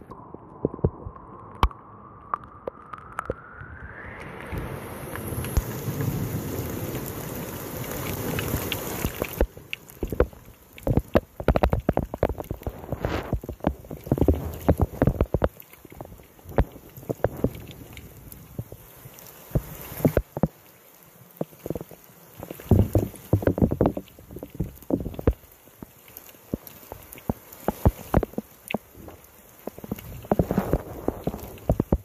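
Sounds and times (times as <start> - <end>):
rain and wind rushing: 0.0 - 32.0
sharp taps and knocks: 9.0 - 12.7.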